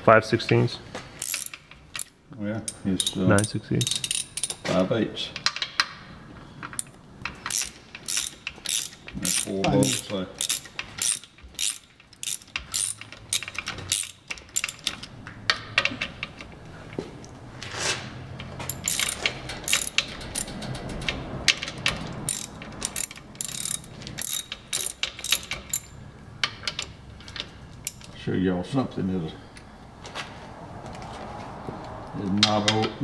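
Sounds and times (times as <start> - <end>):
socket ratchet clicking: 1.2 - 2.1, 2.7 - 4.6, 6.7 - 16.1, 18.4 - 27.0.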